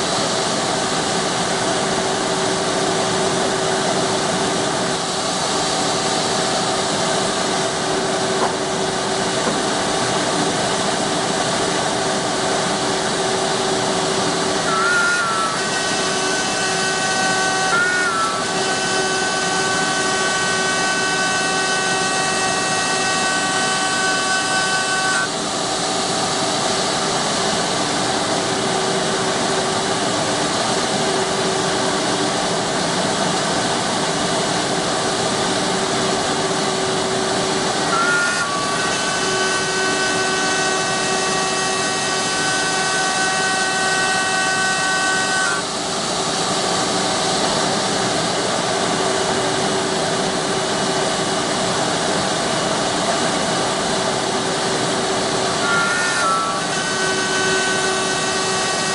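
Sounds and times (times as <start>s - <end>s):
router motor whine: 13.0s - 27.1s, 35.8s - 50.4s, 53.7s - 58.9s.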